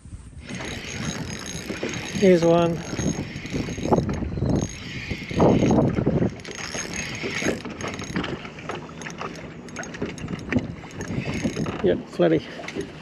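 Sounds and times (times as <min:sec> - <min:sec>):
fishing reel clicking and whirring: 0:00.4 - 0:13.0.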